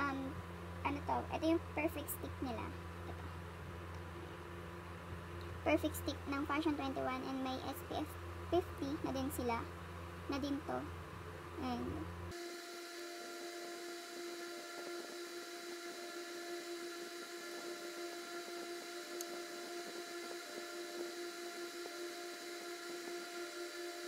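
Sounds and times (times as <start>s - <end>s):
small electric motor humming: 11.5s - 24.0s.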